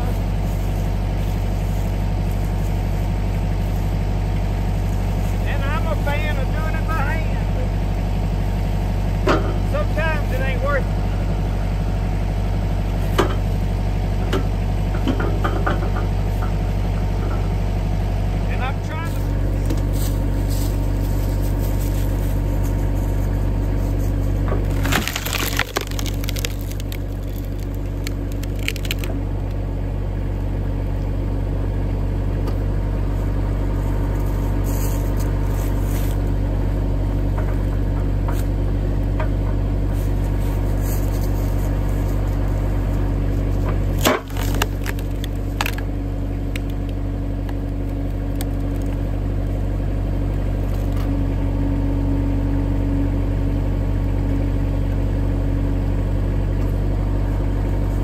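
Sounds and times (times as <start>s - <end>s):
hydraulic log splitter: 0.0s - 58.0s
tractor engine running: 0.0s - 58.0s
wood cracking as it splits: 19.8s - 29.7s, 40.0s - 49.7s.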